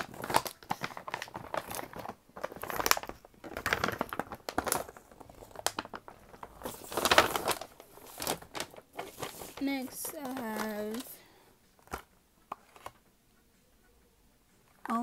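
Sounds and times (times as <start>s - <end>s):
bag rustling and crinkling: 0.0s - 11.2s.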